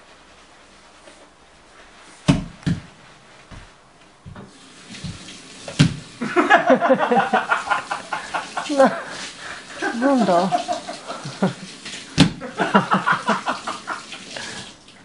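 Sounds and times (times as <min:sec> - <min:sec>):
bare feet thudding on wooden floor: 0:02.2 - 0:06.1, 0:12.2 - 0:12.4
adults laughing: 0:06.2 - 0:11.8, 0:12.4 - 0:14.2.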